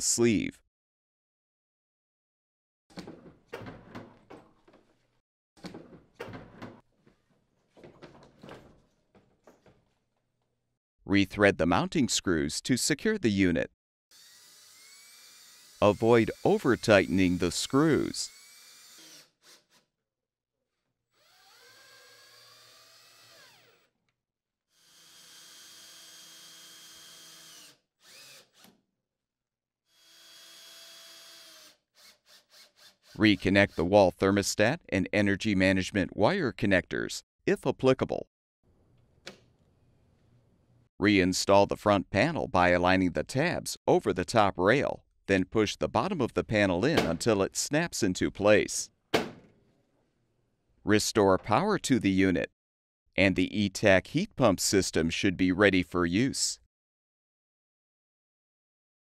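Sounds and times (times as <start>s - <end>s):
faint cordless drill motor: 18.3s - 19.8s, 21.2s - 23.9s, 24.7s - 28.8s, 29.9s - 33.2s.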